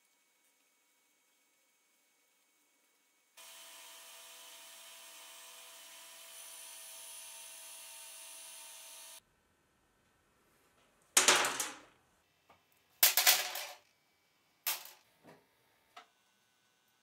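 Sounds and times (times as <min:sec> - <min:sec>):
belt grinder grinding steel: 0:03.4 - 0:09.2.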